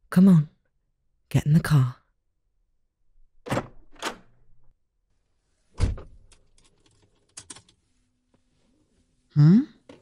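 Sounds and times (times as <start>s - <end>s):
small clicks and rattles: 6.3s - 7.8s.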